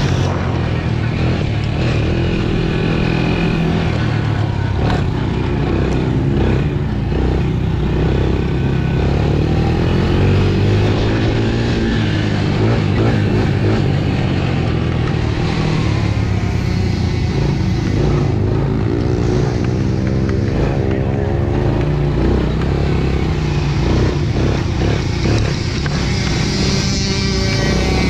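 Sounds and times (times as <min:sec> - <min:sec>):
small atv engine running: 0:00.0 - 0:28.0.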